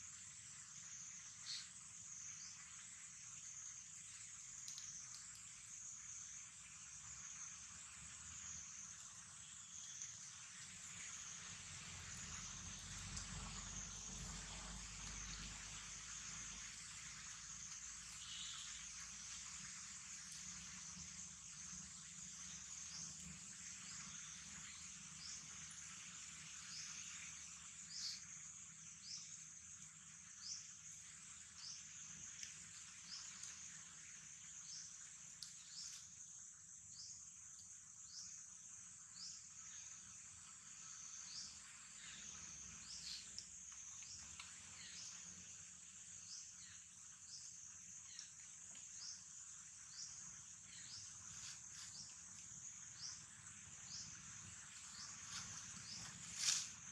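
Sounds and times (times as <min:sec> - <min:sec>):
insects droning: 0:00.0 - 0:56.9.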